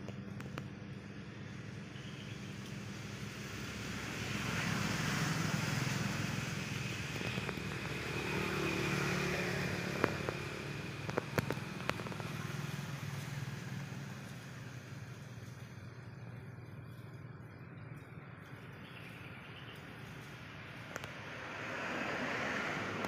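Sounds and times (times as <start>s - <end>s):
vehicles passing by: 0.0s - 23.0s
sharp clicks: 9.6s - 12.6s.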